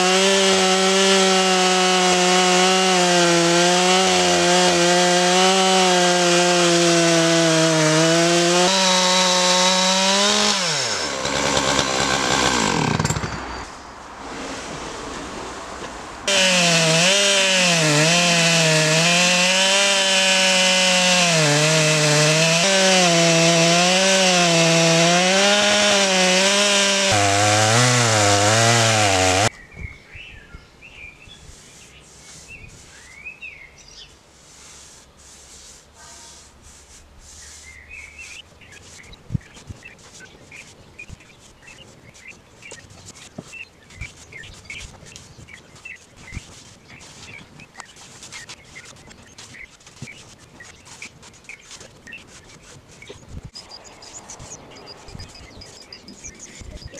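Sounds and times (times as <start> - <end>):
chainsaw cutting wood: 0.0 - 13.5, 16.3 - 29.5
paintbrush scrubbing wood: 31.5 - 33.2, 34.3 - 53.2
birds chirping: 37.3 - 56.9.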